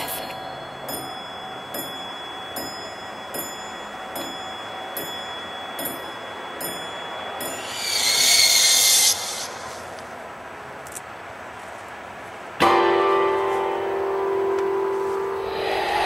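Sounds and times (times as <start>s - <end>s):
thin high tone: 0.0s - 10.0s
loud high hissing burst: 7.5s - 10.0s, 15.4s - 16.0s.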